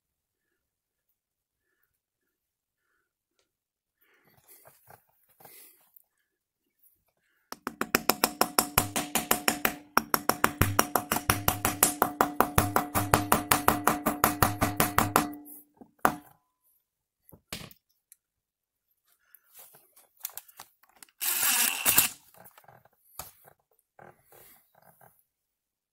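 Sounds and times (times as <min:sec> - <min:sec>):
hammer tapping metal: 0:07.5 - 0:16.3.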